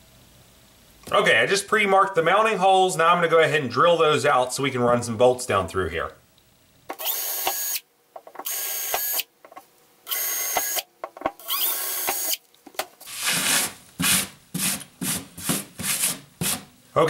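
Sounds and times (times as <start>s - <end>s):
cordless drill boring wood: 7.0s - 7.8s, 8.4s - 9.2s, 10.1s - 10.8s, 11.4s - 12.4s
gloved hand brushing wood shavings: 13.0s - 16.6s.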